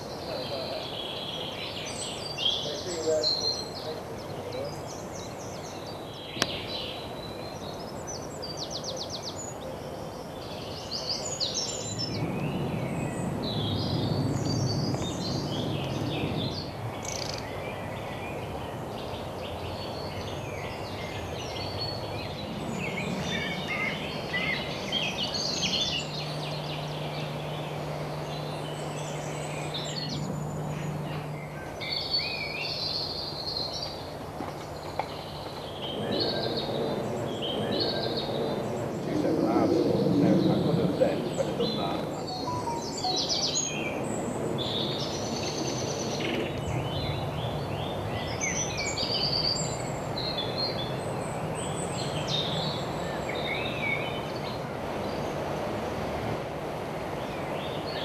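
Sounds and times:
songbirds singing and chirping: 0:00.0 - 0:56.0
low steady hum: 0:21.4 - 0:34.2.

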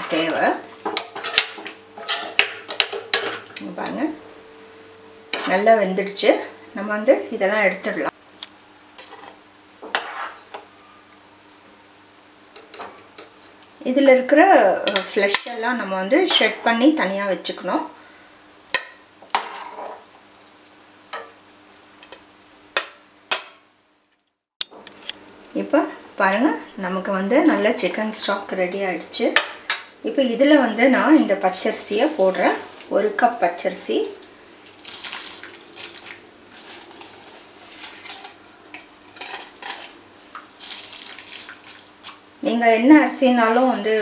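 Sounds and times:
ladle scraping pot: 0:01.0 - 0:03.5
rice pattering into liquid: 0:34.6 - 0:42.4.

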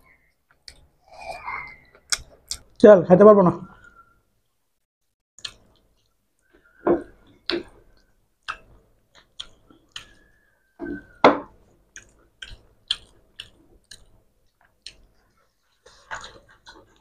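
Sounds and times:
people chewing with mouth smacks: 0:00.0 - 0:02.8, 0:05.4 - 0:17.0
faint thin whistle-like tone: 0:03.7 - 0:04.3, 0:06.4 - 0:07.1, 0:10.0 - 0:11.4.

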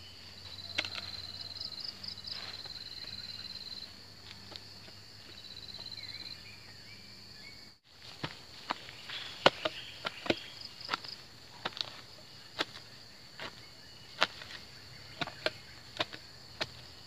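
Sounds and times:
hoe chopping into soil: 0:08.0 - 0:17.0.

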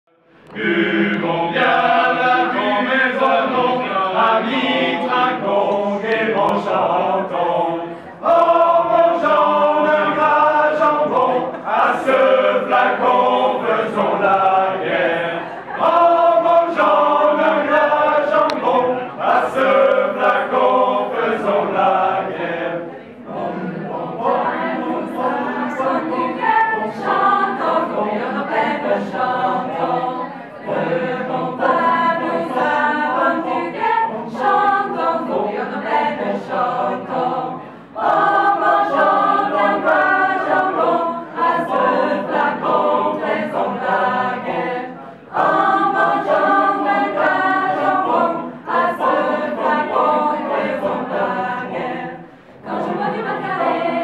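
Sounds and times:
group singing unaccompanied: 0:00.2 - 0:54.0.

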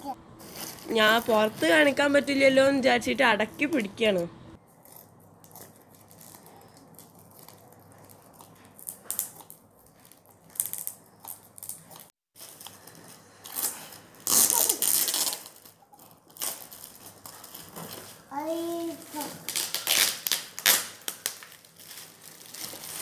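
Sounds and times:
gift wrap crinkling and rustling: 0:00.4 - 0:02.3, 0:04.6 - 0:23.0
scissors snipping foil: 0:13.5 - 0:17.9.

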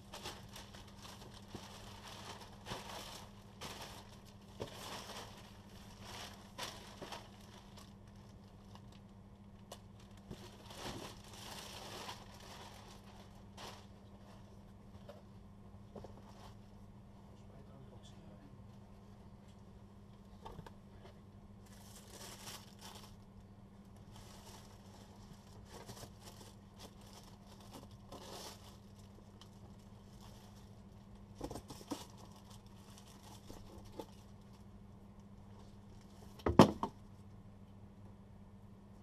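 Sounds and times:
paper and cardboard rustling: 0:00.0 - 0:08.0, 0:10.2 - 0:14.5, 0:31.3 - 0:34.3.

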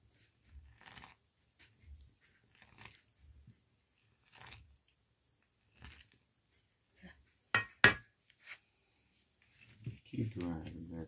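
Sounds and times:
milk pouring in a wok: 0:04.0 - 0:04.8.

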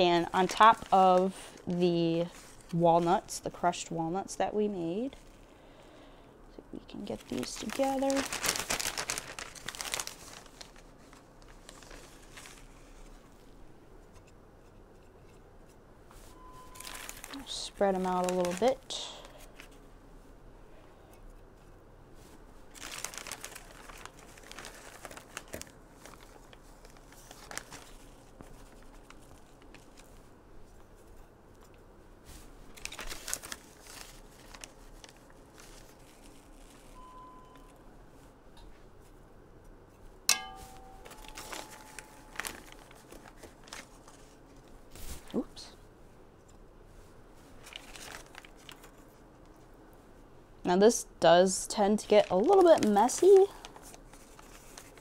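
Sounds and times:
plastic bag rustling: 0:00.0 - 0:03.7, 0:06.9 - 0:13.4, 0:16.2 - 0:19.8, 0:22.2 - 0:37.7, 0:40.3 - 0:45.7, 0:47.0 - 0:49.4, 0:51.9 - 0:55.0.

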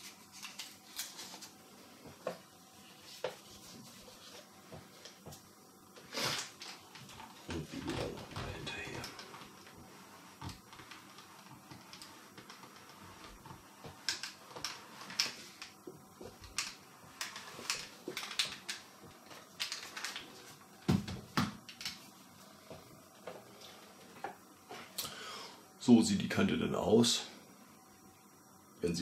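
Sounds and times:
iron sliding over paper: 0:00.0 - 0:20.6.

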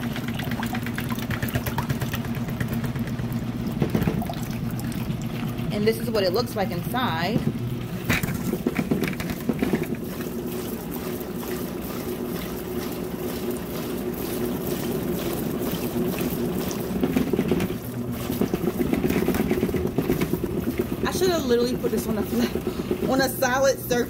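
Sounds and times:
washing machine motor humming: 0:00.0 - 0:24.0
water trickling from hose: 0:07.6 - 0:22.8.

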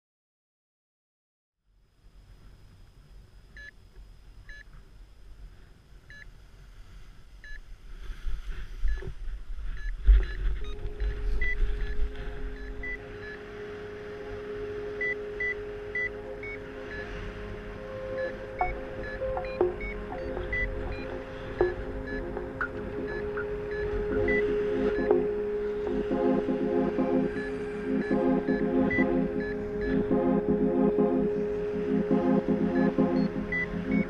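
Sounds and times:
variometer beeping: 0:09.8 - 0:13.4, 0:15.0 - 0:17.1, 0:18.2 - 0:34.0
steady held tones: 0:09.9 - 0:34.0.

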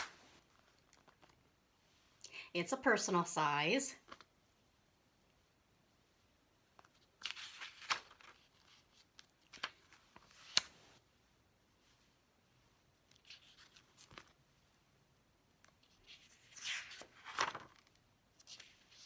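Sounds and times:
paper pages rustling: 0:06.7 - 0:10.9, 0:13.1 - 0:14.4, 0:15.6 - 0:19.0.

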